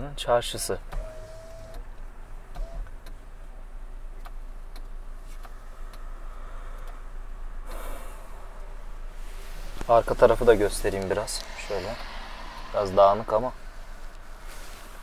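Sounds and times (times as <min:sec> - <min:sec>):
car interior hum: 0:00.1 - 0:15.0
light ticks: 0:04.2 - 0:06.1, 0:06.7 - 0:07.0
brief rush of noise: 0:07.7 - 0:15.0.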